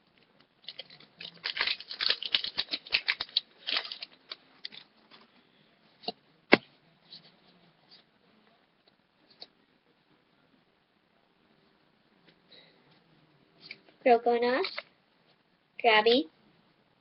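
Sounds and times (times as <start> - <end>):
foil crackles: 0.7 - 4.2
foil pack crinkling and ripping: 0.7 - 4.8.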